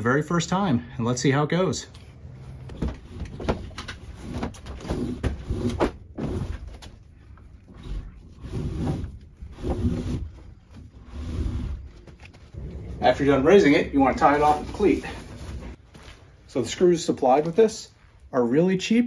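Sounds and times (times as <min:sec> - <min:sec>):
rope rubbing through pulleys: 0:07.6 - 0:13.6.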